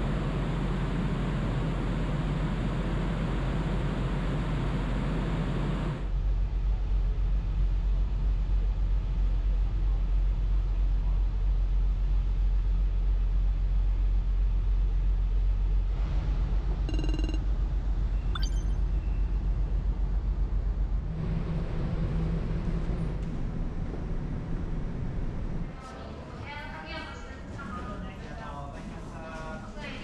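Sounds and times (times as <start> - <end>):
short high beep: 16.9 - 17.4, 18.4 - 18.8.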